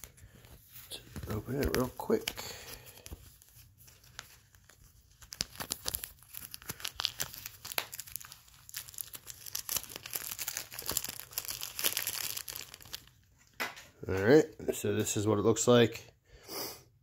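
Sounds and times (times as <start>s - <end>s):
plastic wrapper crinkling and tearing: 0.0s - 13.6s.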